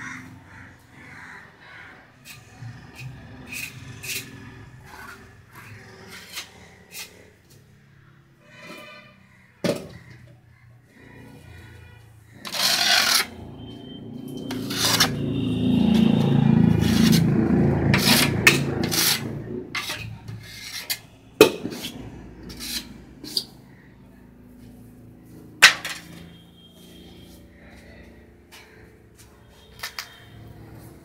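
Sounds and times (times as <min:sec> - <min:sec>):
hand tool scraping metal tray: 0:12.4 - 0:13.4, 0:14.4 - 0:23.5.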